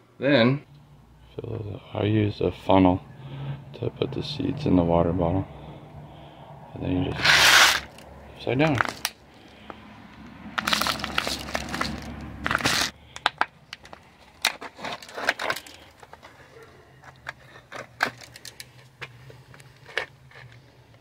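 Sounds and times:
plastic bottles crinkling: 8.7s - 9.2s, 10.6s - 20.6s.

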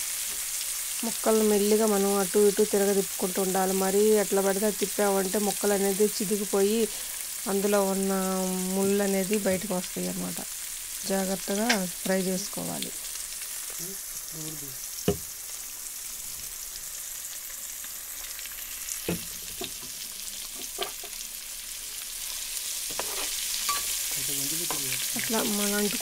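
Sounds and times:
fish sizzling in hot oil: 0.0s - 26.0s.

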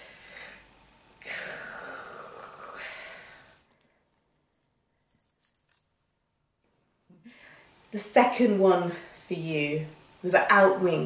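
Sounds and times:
faint crisp crackles: 3.6s - 6.7s.

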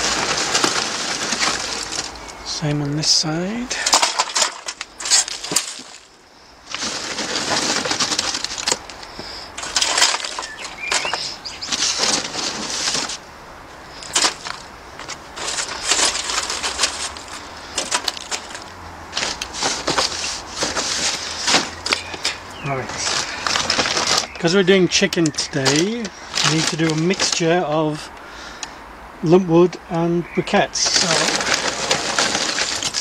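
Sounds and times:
sticks rustling and clattering: 0.0s - 28.8s, 30.5s - 33.0s
sharp clicks and cracks: 3.8s - 6.1s, 6.7s - 13.2s, 14.0s - 22.4s.

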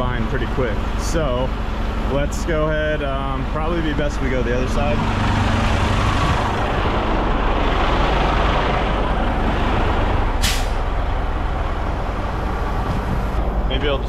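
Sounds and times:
diesel truck engine idling: 0.0s - 14.0s
air brake hiss: 10.4s - 10.8s.

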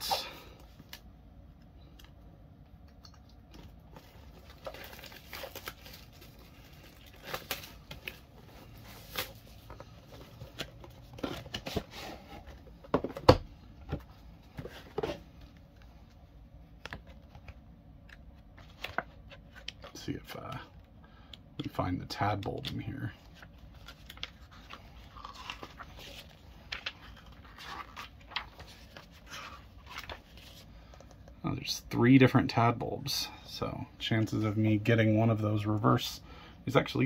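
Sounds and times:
plastic wrap tearing and crinkling: 4.1s - 8.3s, 23.8s - 30.5s.

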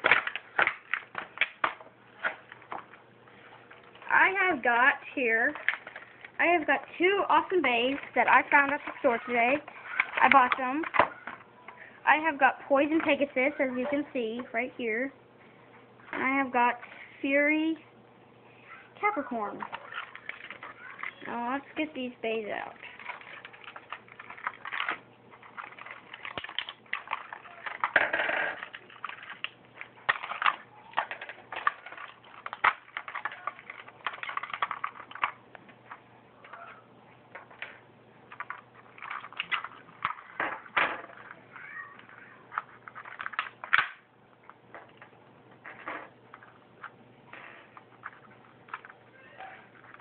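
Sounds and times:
plastic packaging crinkling: 22.7s - 35.4s
small toy parts clacking on wooden table: 22.9s - 35.4s, 37.4s - 41.4s, 42.0s - 44.0s.

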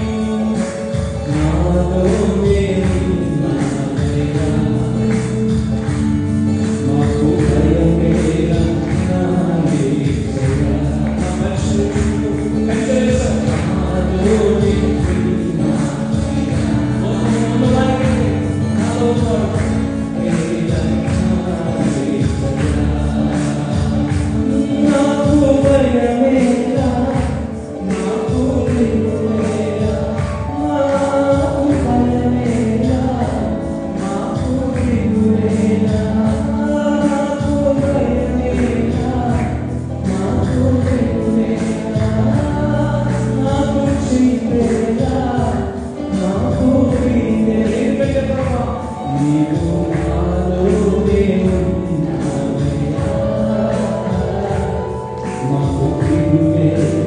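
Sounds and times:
instrumental backing with beat: 0.0s - 57.0s
group of voices singing: 6.8s - 57.0s.

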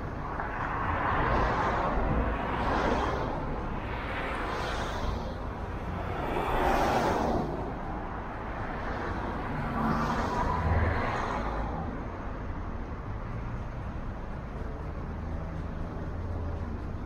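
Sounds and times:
car road rumble and tyre hiss: 0.0s - 17.0s
passing traffic rush: 0.0s - 17.0s.

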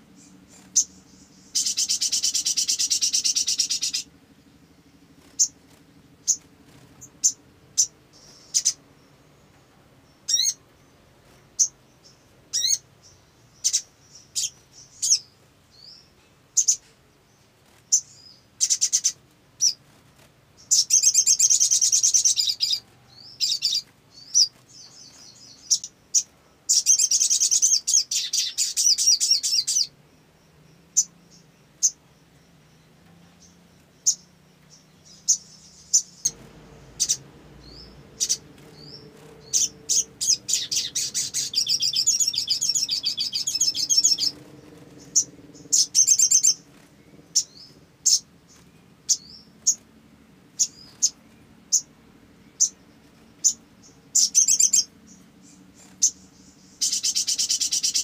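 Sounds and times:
bird chirping and twittering: 0.0s - 58.0s.

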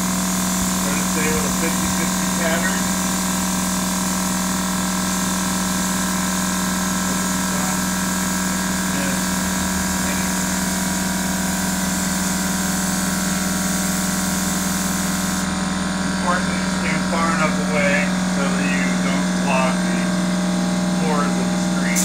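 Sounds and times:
machine hum: 0.0s - 22.0s
spray gun air hiss: 7.1s - 15.5s, 21.6s - 22.0s.

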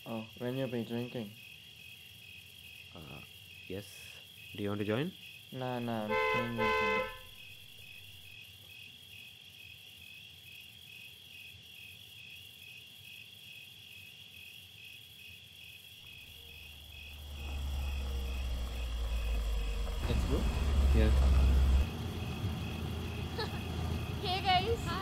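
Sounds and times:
crickets chirping: 0.0s - 25.0s
car engine rumble: 16.2s - 25.0s.

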